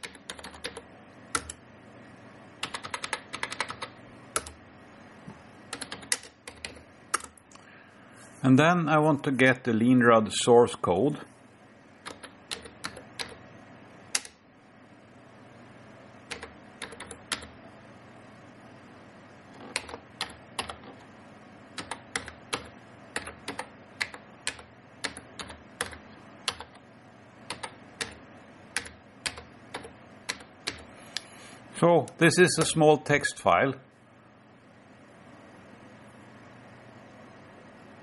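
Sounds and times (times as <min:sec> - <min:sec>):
keyboard typing clicks: 0:00.0 - 0:01.6, 0:02.6 - 0:04.6, 0:05.7 - 0:07.4, 0:12.0 - 0:13.4, 0:16.3 - 0:17.5, 0:19.6 - 0:21.0, 0:21.8 - 0:26.8, 0:27.5 - 0:28.2, 0:28.8 - 0:30.9.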